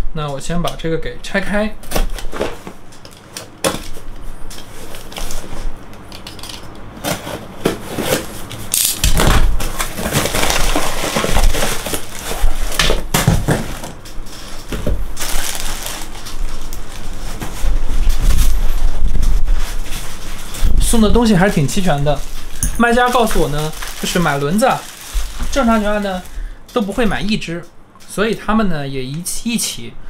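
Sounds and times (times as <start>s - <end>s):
packaging crinkling and tearing: 7.0s - 20.8s, 21.4s - 27.0s.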